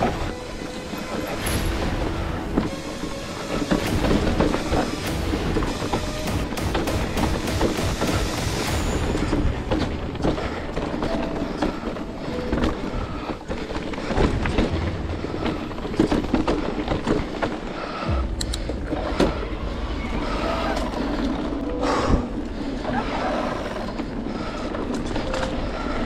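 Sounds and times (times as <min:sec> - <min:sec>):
bike rattling clatter: 0:00.0 - 0:18.1.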